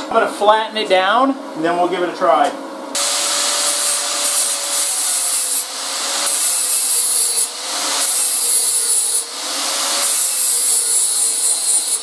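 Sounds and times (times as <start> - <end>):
angle grinder grinding metal: 3.0 - 12.0.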